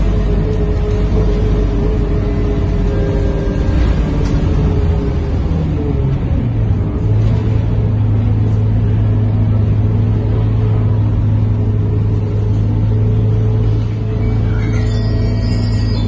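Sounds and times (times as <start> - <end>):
gearbox whining: 0.0 - 8.0
bus engine drone: 0.0 - 16.0
road rumble: 0.0 - 16.0.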